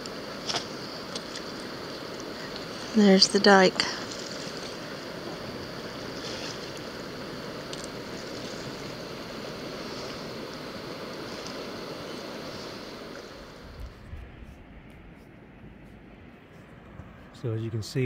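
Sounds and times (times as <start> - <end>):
river water rushing over rapids: 0.0 - 13.8.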